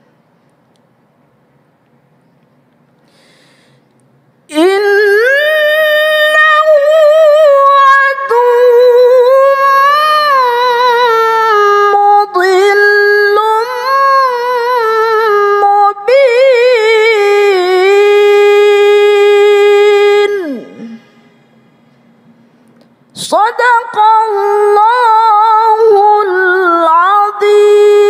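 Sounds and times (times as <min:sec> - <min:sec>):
short breaths: 0:03.0 - 0:04.0
woman chanting melodically: 0:04.5 - 0:21.4, 0:23.2 - 0:28.0.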